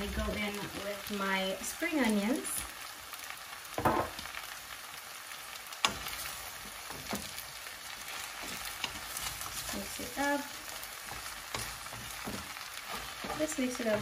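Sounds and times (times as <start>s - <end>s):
food sizzling in a wok: 0.0s - 14.0s
spatula knocking on pan: 3.8s - 4.2s, 11.1s - 14.0s.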